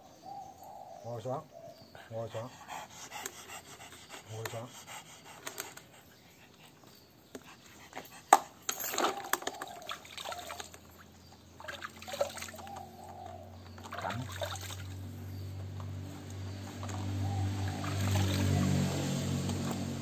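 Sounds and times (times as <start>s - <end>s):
water sloshing in plastic basin: 8.8s - 15.1s, 17.7s - 19.8s.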